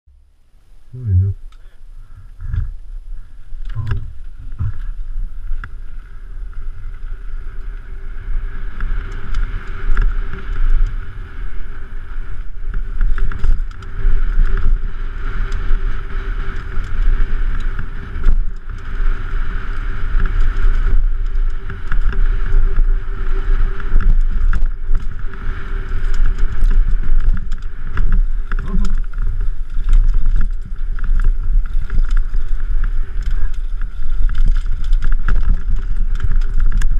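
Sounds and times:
bike knocking and rattling: 0:01.6 - 0:36.9
tyres rumbling on dirt: 0:02.0 - 0:36.9
wind buffeting a camera: 0:02.0 - 0:36.9.

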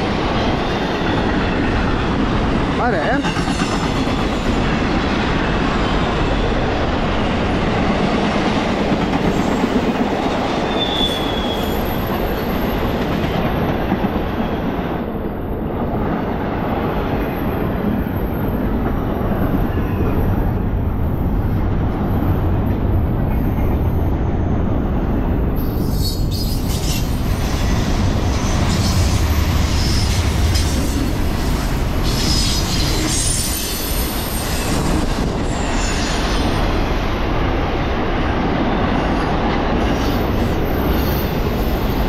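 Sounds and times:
steel wheels rumbling on rails: 0:00.0 - 0:42.0
high-pitched wheel squeal: 0:10.7 - 0:12.5.

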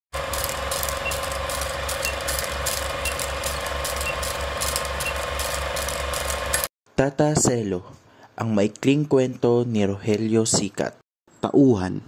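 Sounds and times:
film projector clatter: 0:00.1 - 0:06.7.

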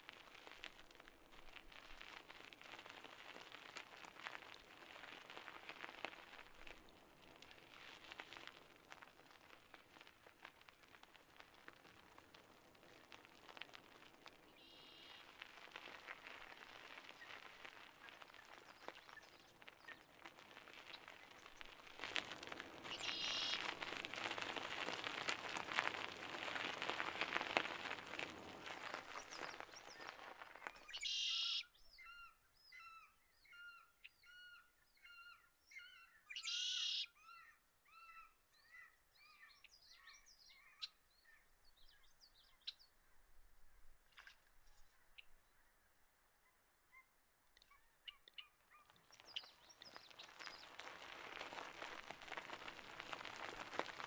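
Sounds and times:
bicycle tyres rolling: 0:00.0 - 0:31.9, 0:48.6 - 0:54.0
birds chirping: 0:17.0 - 0:21.8, 0:22.9 - 0:23.8, 0:28.8 - 0:42.9, 0:46.9 - 0:50.8
harsh bird calls: 0:22.9 - 0:23.6, 0:29.2 - 0:32.9.

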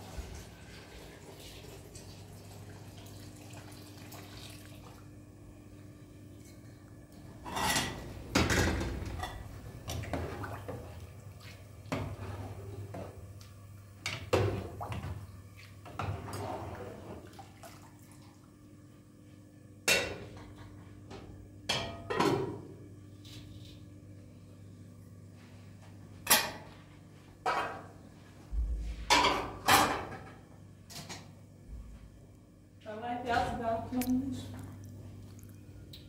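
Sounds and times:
dishes and pots clattering: 0:07.4 - 0:10.4, 0:19.8 - 0:20.7, 0:21.7 - 0:22.6, 0:27.4 - 0:27.9, 0:29.1 - 0:30.4
steady low hum: 0:30.2 - 0:36.0.

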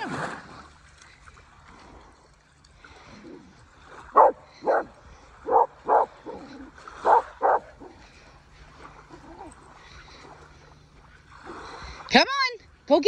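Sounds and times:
dog barking: 0:04.2 - 0:04.9, 0:05.5 - 0:07.7.

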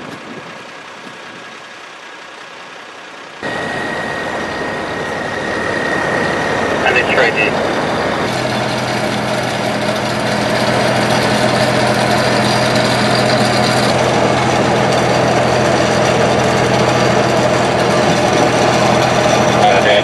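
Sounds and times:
truck engine running: 0:00.0 - 0:20.0
steady rushing noise: 0:03.3 - 0:16.8.

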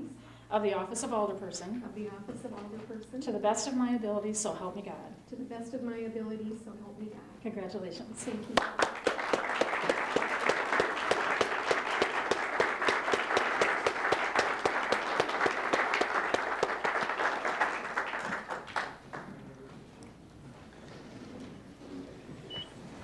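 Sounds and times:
audience applauding: 0:08.6 - 0:19.6.

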